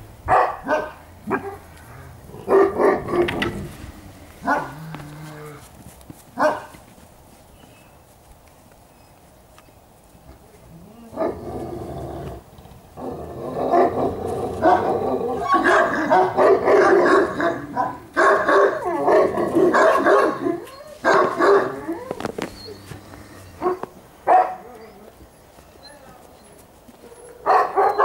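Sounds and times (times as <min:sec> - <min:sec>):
dogs growling and barking: 0:00.3 - 0:05.7, 0:10.7 - 0:25.1.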